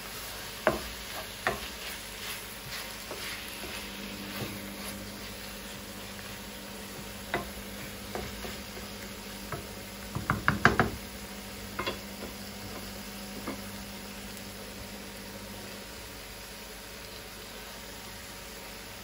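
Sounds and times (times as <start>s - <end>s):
food sizzling: 0.0s - 19.0s
spatula knocking on frying pan: 0.6s - 1.8s, 6.9s - 11.1s, 11.7s - 13.7s.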